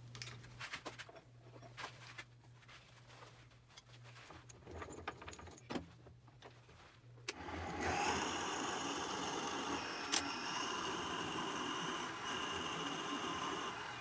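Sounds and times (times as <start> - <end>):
drill bit boring into wood: 7.3 - 14.0
wood lathe motor running: 7.3 - 14.0.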